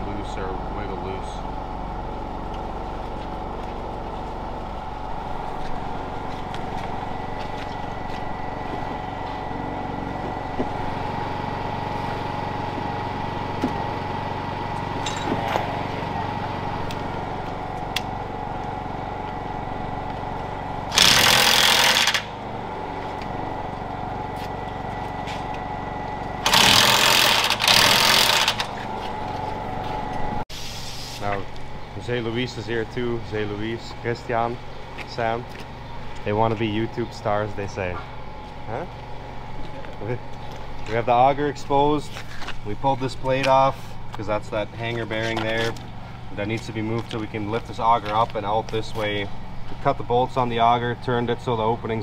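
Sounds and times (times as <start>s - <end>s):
steady machine hum: 0.0s - 52.0s
impact wrench hammering: 20.9s - 22.3s, 26.4s - 28.7s.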